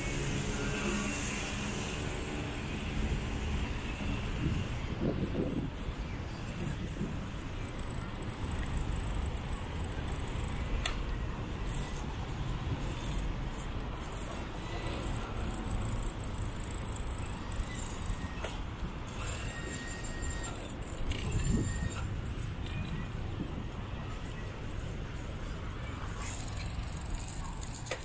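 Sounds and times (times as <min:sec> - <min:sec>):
wind rumble on microphone: 0:02.9 - 0:07.7, 0:21.0 - 0:26.1
bicycle tyres rolling on asphalt: 0:04.4 - 0:28.0.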